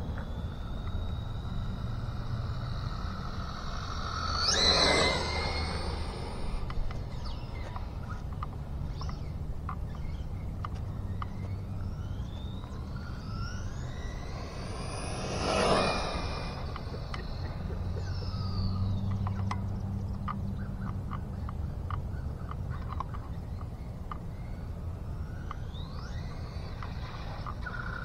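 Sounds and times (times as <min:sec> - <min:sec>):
electric motor whining: 0:00.0 - 0:08.0, 0:10.1 - 0:19.2
steady low hum: 0:00.0 - 0:28.0.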